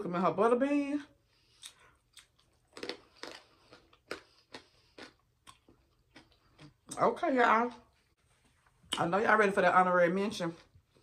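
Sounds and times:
person chewing food: 1.3 - 7.0.

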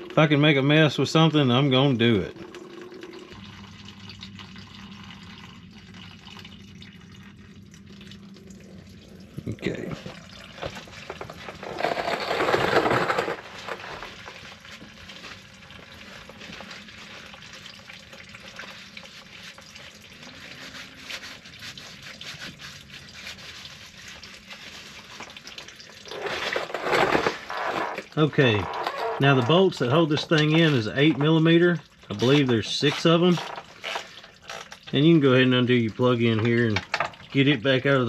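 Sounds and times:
fuel trickling into a pan: 0.0 - 12.2, 12.9 - 38.0.

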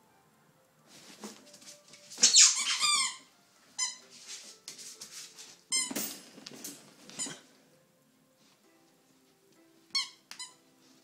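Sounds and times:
puppy scuffling: 0.9 - 7.5
squeaky toy squeaking: 2.2 - 4.0, 9.9 - 10.6.

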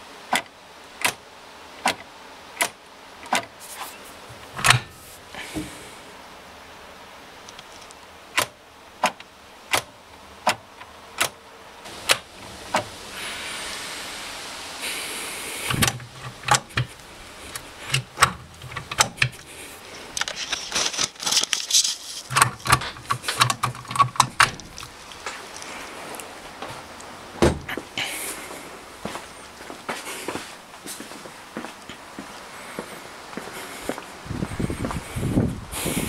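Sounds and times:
short hiss: 11.9 - 16.1
gear lever clicks and rattles: 17.9 - 19.5, 20.1 - 24.9.

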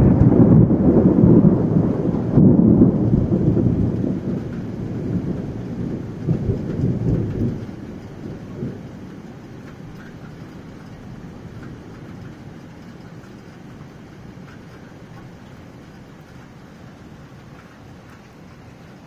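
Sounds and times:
rain hissing: 0.0 - 19.0
rolling thunder: 0.0 - 19.0.

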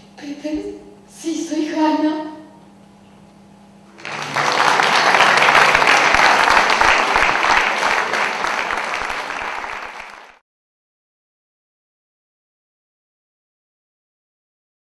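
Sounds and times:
audience applauding: 3.9 - 10.4.

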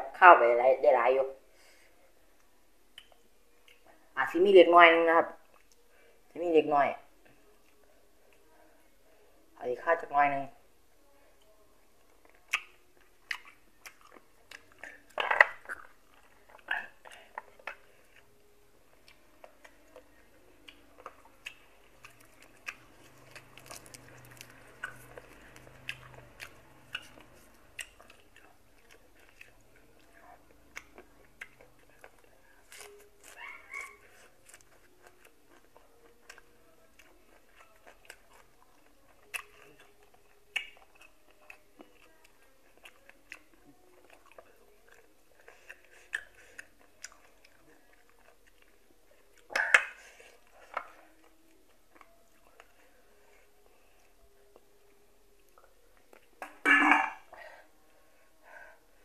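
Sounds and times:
close chewing and biting: 12.0 - 56.6.

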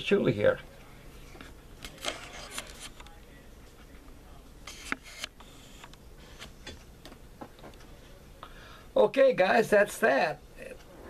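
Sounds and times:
faint room hum: 0.0 - 11.0
camera handling rustles and clicks: 1.8 - 3.1.

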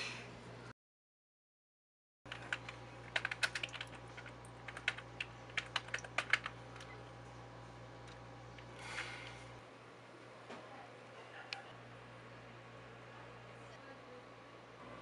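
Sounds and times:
typing on a computer keyboard: 2.3 - 6.6.

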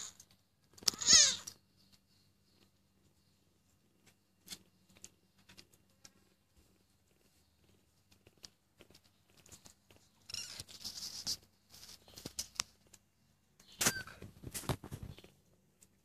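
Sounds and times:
faint rustles and taps: 0.3 - 13.1, 14.1 - 16.0
cat meowing: 0.8 - 1.5.

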